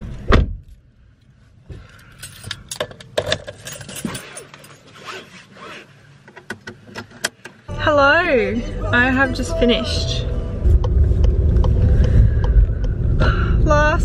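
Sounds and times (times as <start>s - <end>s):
seatbelt strap pulled out: 4.0s - 6.0s.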